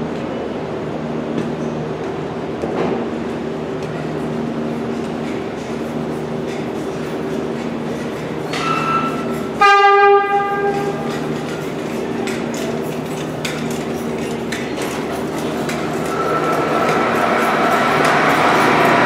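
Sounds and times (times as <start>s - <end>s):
train humming: 0.0s - 19.0s
subway train horn blast: 8.6s - 11.2s.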